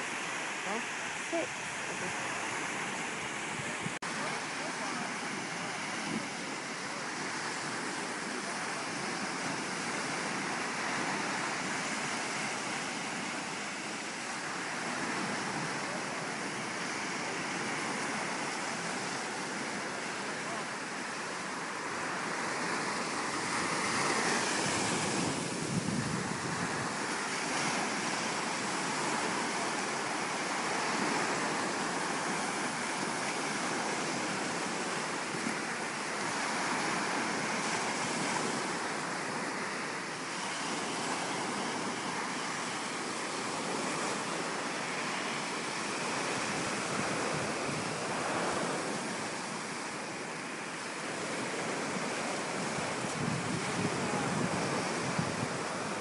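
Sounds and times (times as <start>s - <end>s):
surf washing onto beach: 0.0s - 56.0s
wind buffeting microphone: 21.5s - 39.4s, 45.6s - 50.0s, 51.0s - 56.0s.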